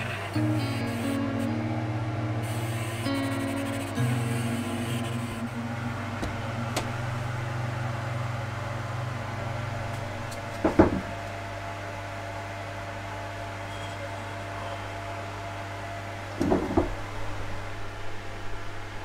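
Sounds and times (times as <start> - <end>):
oven electrical hum: 0.0 - 19.0
sharp knocks: 10.6 - 11.1.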